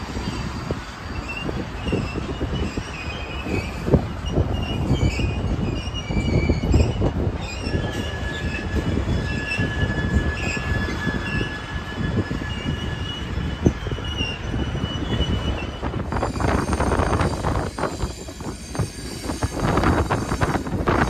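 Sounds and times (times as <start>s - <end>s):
freight train wheels rumbling: 0.0s - 21.0s
high-pitched wheel squeal: 0.1s - 21.0s.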